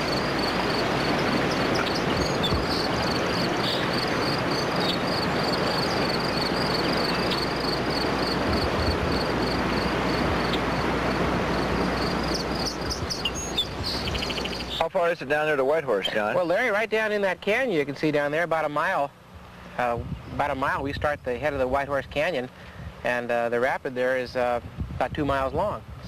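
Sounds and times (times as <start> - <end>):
river rushing: 0.0 - 14.6
high insect chirp: 0.0 - 14.8.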